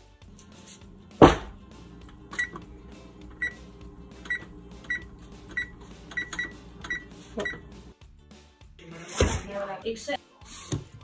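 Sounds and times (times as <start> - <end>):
oven keypad beeps: 2.0 - 7.9.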